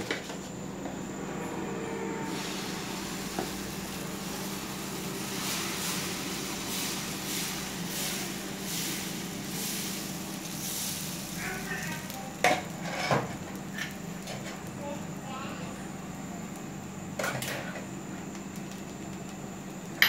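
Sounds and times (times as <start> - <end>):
steady hiss and low hum: 0.0 - 20.0
ladle scraping a pan: 12.7 - 13.3.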